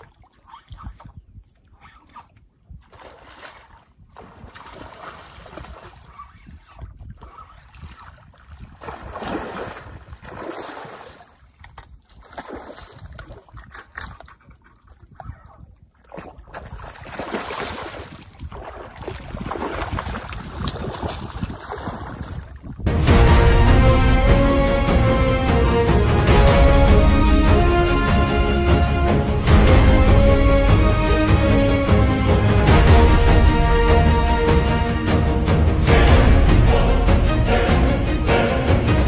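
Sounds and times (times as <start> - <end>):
fish splashing in water: 16.0 - 22.5.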